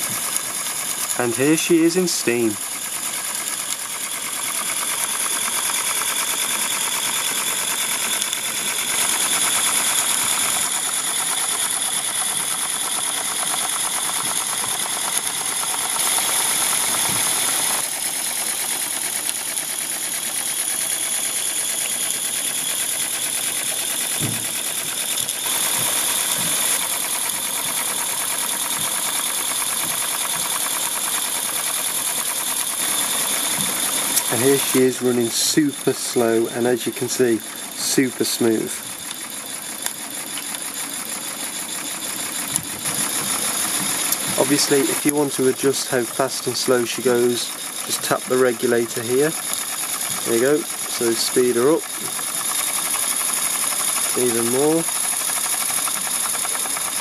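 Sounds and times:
steam locomotive chuffing: 0.0s - 57.0s
steam hissing: 32.9s - 38.8s, 43.3s - 57.0s.

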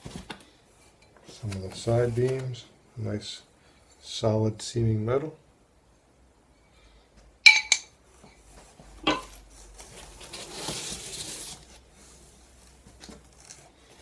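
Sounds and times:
metal plates clinking: 7.5s - 7.9s, 9.0s - 9.3s.

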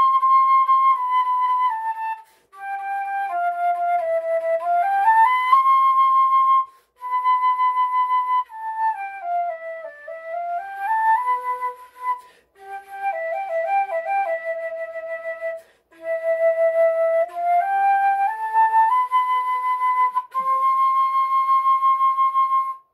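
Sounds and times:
flute melody: 0.0s - 22.9s
breaths: 2.2s - 2.6s, 6.7s - 7.0s, 12.2s - 12.6s, 15.6s - 16.0s.

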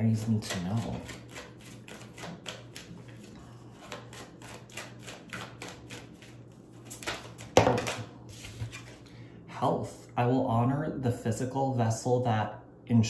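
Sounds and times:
cards being shuffled: 0.5s - 9.0s.

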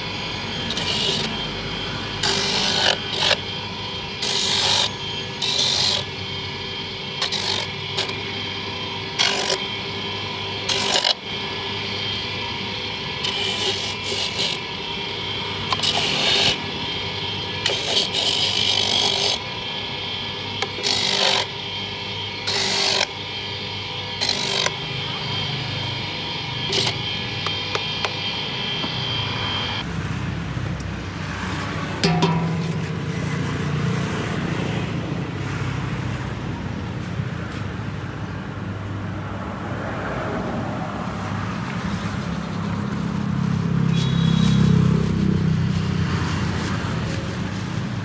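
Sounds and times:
rasping of coconut grating: 0.0s - 6.2s, 7.0s - 19.7s, 20.5s - 21.7s, 22.3s - 28.2s
electric grater motor running: 0.0s - 36.6s, 40.8s - 48.0s.

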